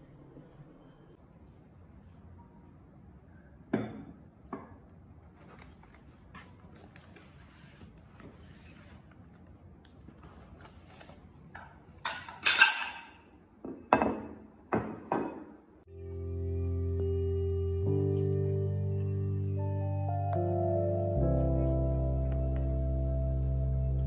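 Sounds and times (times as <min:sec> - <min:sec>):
paper crinkling: 0:05.3 - 0:11.5
paper rustling: 0:05.3 - 0:11.5
music: 0:15.9 - 0:24.0.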